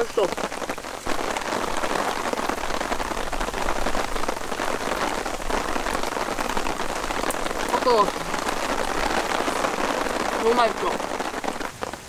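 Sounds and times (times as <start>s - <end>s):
rain on a tarp: 0.0s - 12.0s.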